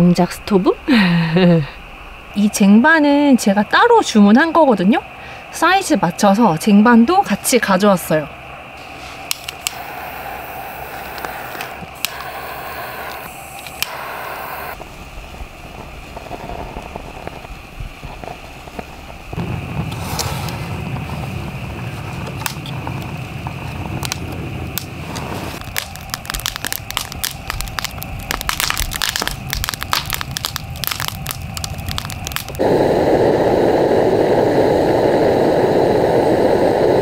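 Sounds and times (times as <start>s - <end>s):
low rush of flame: 8.4s - 37.0s
fire crackling and popping: 8.5s - 37.0s
torch lighter clicks: 9.3s - 14.8s.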